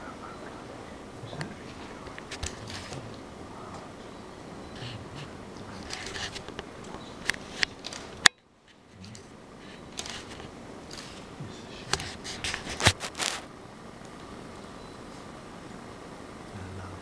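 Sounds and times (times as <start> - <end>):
soft rustling: 0.5 - 4.0, 4.7 - 16.0
sharp clicks: 4.8 - 8.4, 9.0 - 11.2.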